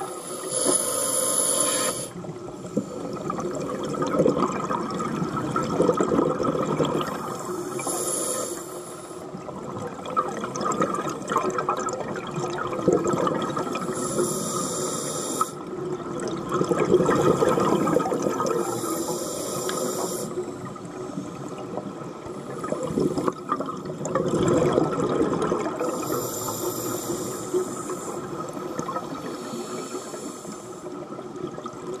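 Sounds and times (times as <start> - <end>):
scuba regulator hissing inhale: 0.0 - 3.2, 7.2 - 9.2, 13.8 - 15.6, 18.6 - 20.4, 25.8 - 28.4, 29.2 - 30.9
exhaled bubbles rushing: 3.1 - 7.3, 9.4 - 14.0, 15.8 - 18.8, 21.6 - 26.2.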